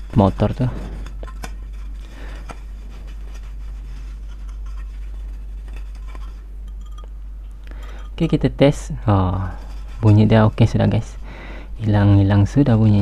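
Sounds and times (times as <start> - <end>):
cloth rubbing and scraping: 0.0 - 6.6, 9.4 - 11.1
steady low hum: 0.0 - 13.0.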